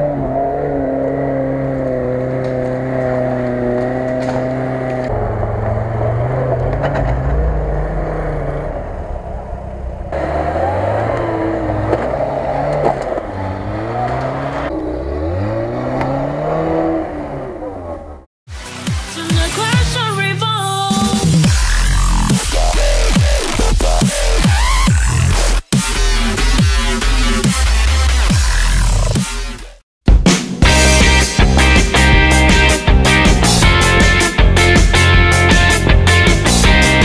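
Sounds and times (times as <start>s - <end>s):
off-road engines revving: 0.0s - 18.3s.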